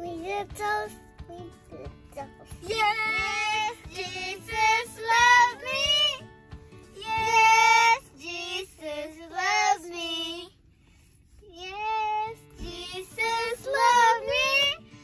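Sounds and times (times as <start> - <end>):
child singing: 0.0 - 6.2, 7.0 - 10.5, 11.4 - 14.8.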